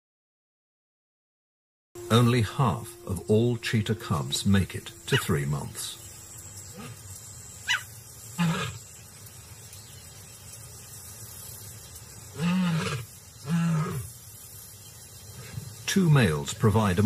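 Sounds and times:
lion roaring: 8.4 - 8.8, 12.3 - 14.1.

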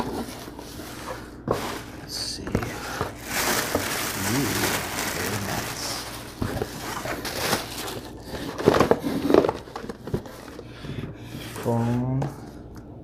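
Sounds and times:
plastic packing wrap crinkling: 2.6 - 10.6.

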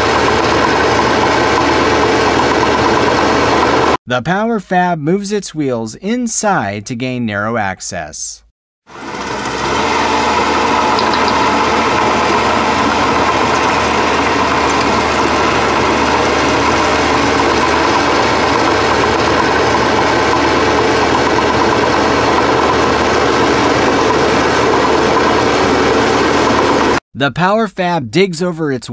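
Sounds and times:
excavator engine running steadily: 0.0 - 4.0, 8.9 - 27.0.

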